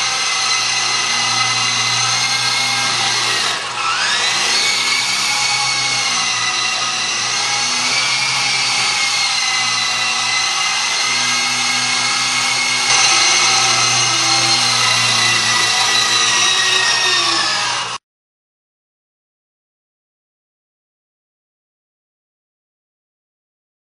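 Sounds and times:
rc helicopter rotor whine: 0.0 - 18.0.

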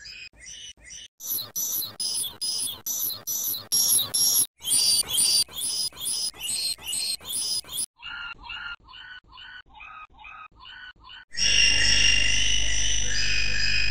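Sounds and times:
processed chirping sound effect: 1.2 - 11.5.

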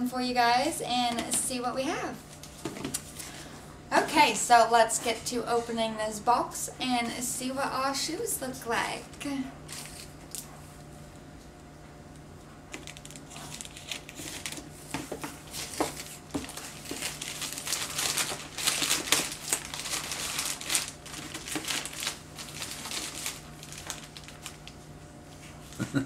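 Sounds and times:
plastic bag crinkling and tearing: 12.8 - 14.7, 15.4 - 24.8.

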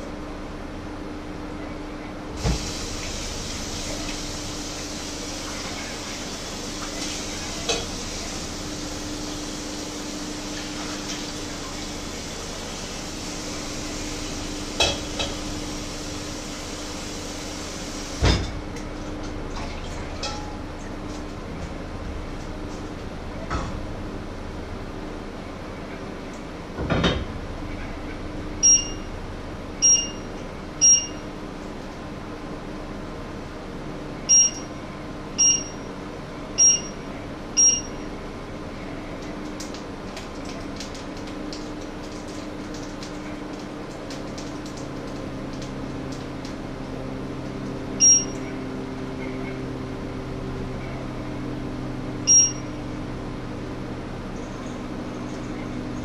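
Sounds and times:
cooktop touch control beeps: 28.6 - 29.1, 29.8 - 31.3, 34.3 - 34.7, 35.4 - 35.9, 36.6 - 37.0, 37.6 - 38.1, 48.0 - 48.4, 52.3 - 52.7.

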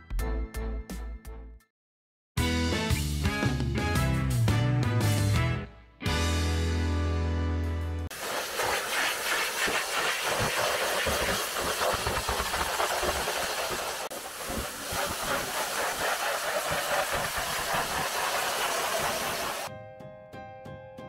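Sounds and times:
pressure washer spraying water: 8.1 - 19.7.

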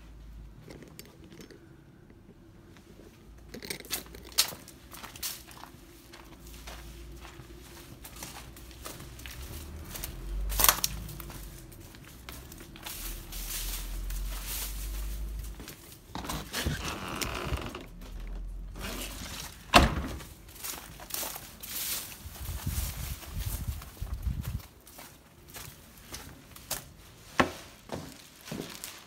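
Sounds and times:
footsteps: 2.7 - 29.0
low rumble: 6.5 - 19.2.

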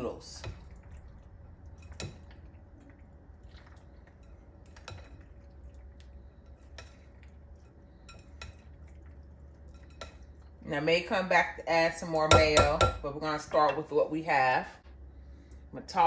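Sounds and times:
soft stirring of pasta: 0.0 - 11.1
spatula tapping glass bowl: 12.2 - 13.8.

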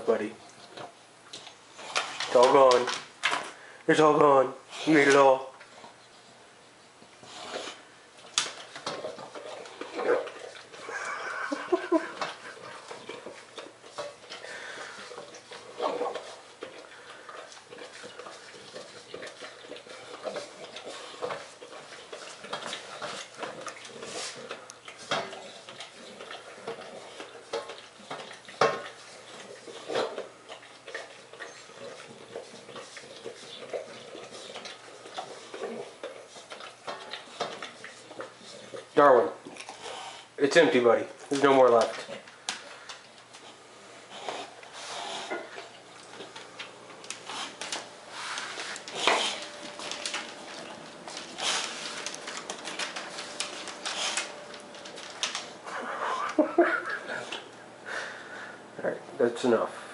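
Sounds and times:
dog snuffling and breathing: 4.7 - 11.3, 12.3 - 40.8, 41.5 - 56.3.

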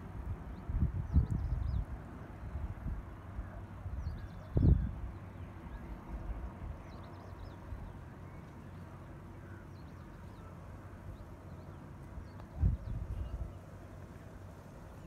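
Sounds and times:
wind rumbling on microphone: 0.0 - 8.1, 12.0 - 15.0.

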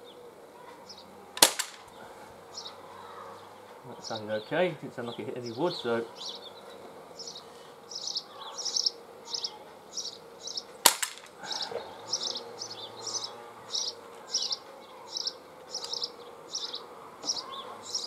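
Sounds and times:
high chirping: 0.9 - 18.0
pellet pistol shot: 1.4 - 1.9, 10.8 - 11.4.

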